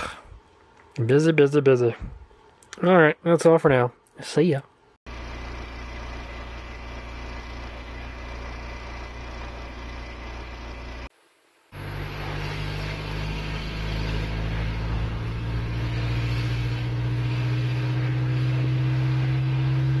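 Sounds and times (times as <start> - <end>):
car engine drone: 5.1 - 20.0
road noise: 5.1 - 20.0.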